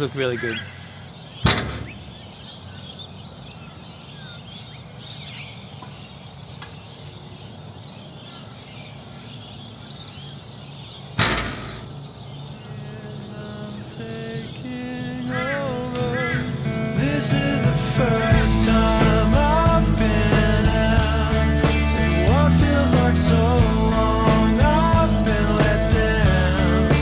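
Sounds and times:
faint bird calls: 0:00.0 - 0:17.0
knocks on steel container doors: 0:01.4 - 0:02.1, 0:11.2 - 0:12.0.

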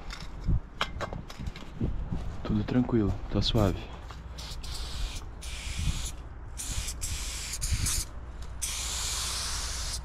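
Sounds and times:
aerosol spray can hissing: 0:04.4 - 0:10.0.

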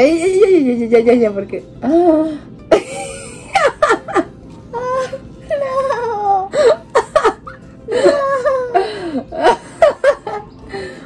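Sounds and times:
people laughing: 0:02.7 - 0:04.3, 0:06.0 - 0:10.8.

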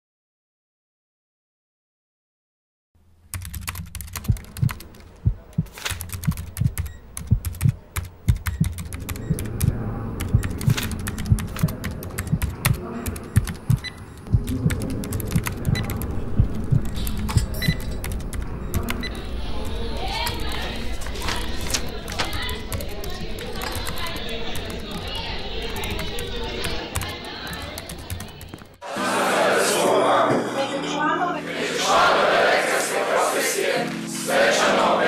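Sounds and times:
typing on computer keyboard: 0:03.3 - 0:28.8
low thuds: 0:05.2 - 0:05.7
steady low drone: 0:08.8 - 0:20.0.

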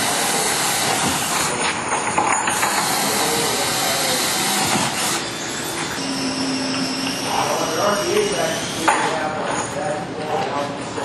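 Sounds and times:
cordless drill hissing: 0:00.0 - 0:01.6, 0:02.7 - 0:08.9.

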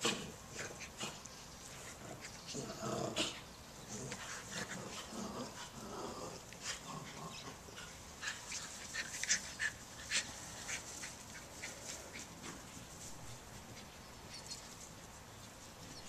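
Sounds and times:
dogs growly whines: 0:02.1 - 0:08.0
dogs scrambling across grass: 0:06.4 - 0:16.0.

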